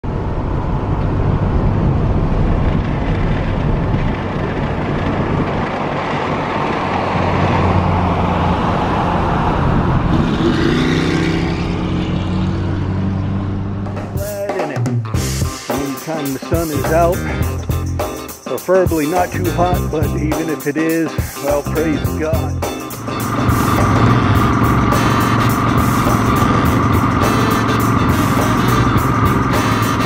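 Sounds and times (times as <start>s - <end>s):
car engine running: 0.0s - 14.6s, 21.5s - 30.0s
road and wind noise: 0.0s - 15.4s, 19.3s - 30.0s.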